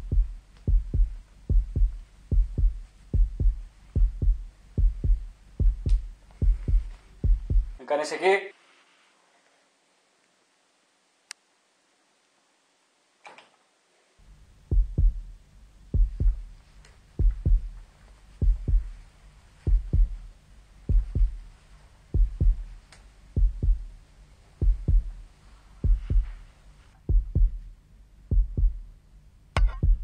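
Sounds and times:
heartbeat thumps: 0:00.0 - 0:07.8, 0:14.6 - 0:29.0, 0:29.6 - 0:30.0
soft rustle: 0:00.1 - 0:07.8, 0:08.5 - 0:10.5, 0:16.2 - 0:27.1.

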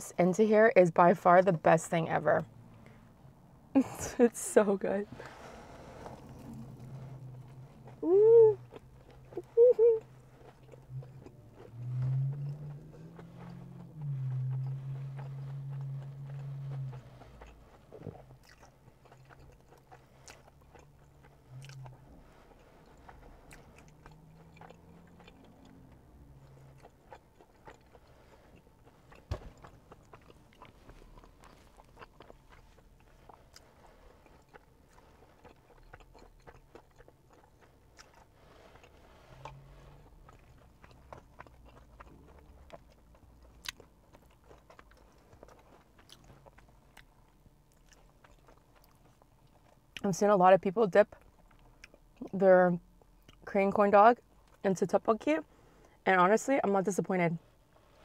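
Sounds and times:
biting and chewing food: 0:05.1 - 0:50.1, 0:51.0 - 0:52.4.

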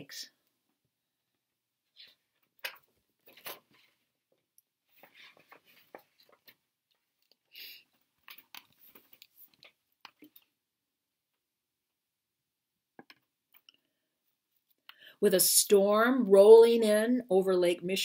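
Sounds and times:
book pages rustling: 0:02.0 - 0:04.1, 0:04.8 - 0:07.4, 0:08.2 - 0:10.5.

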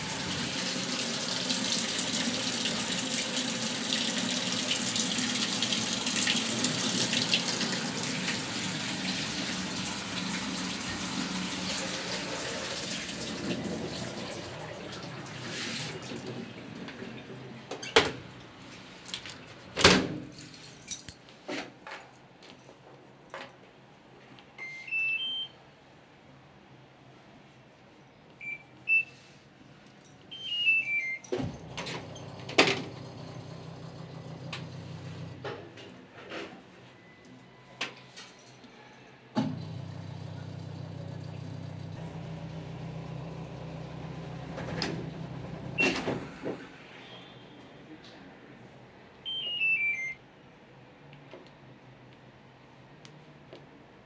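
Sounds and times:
washing machine power-on chime: 0:00.0 - 0:15.4, 0:30.3 - 0:35.4, 0:39.6 - 0:46.0, 0:49.3 - 0:50.2
control panel beep: 0:24.6 - 0:25.5, 0:49.3 - 0:50.2.

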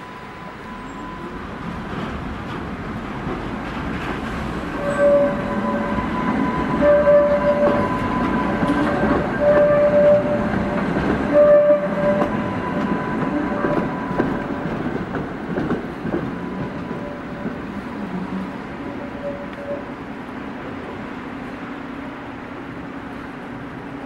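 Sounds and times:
high wheel squeal: 0:00.0 - 0:01.5, 0:04.7 - 0:10.6, 0:16.3 - 0:20.0
tram wheels rumbling on rails: 0:00.0 - 0:24.0.

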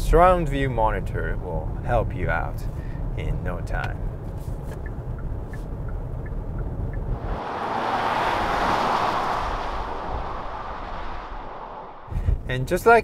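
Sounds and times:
road rumble inside car: 0:00.0 - 0:13.0
car driving past: 0:06.9 - 0:12.2.

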